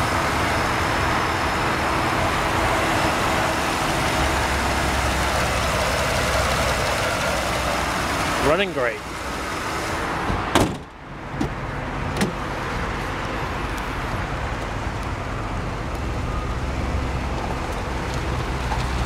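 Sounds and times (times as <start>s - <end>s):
car engine idling: 0.0s - 10.0s
car hood slamming shut: 10.3s - 12.4s.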